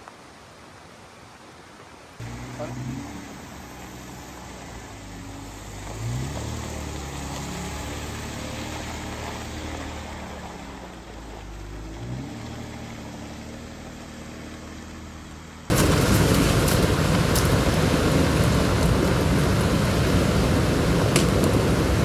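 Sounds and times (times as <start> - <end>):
engine revving: 2.2 - 22.0
vehicle engine idling: 2.2 - 22.0.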